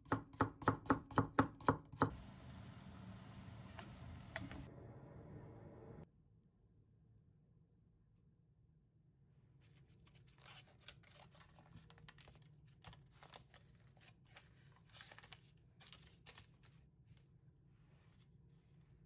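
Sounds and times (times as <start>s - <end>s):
foil paper wrapper crinkling: 10.0s - 16.9s.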